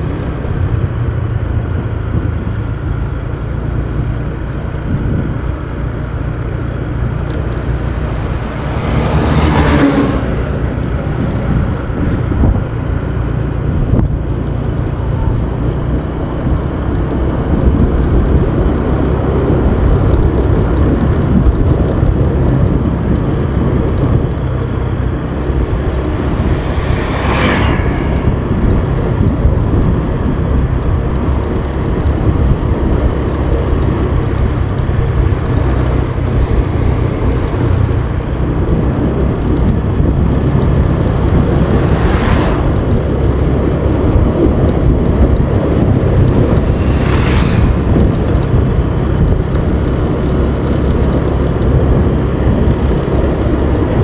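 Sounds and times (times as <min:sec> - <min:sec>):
motorbike engine running: 0:00.0 - 0:54.0
wind rushing on microphone: 0:00.0 - 0:54.0
brief louder whooshes: 0:41.6 - 0:43.2, 0:46.3 - 0:48.4.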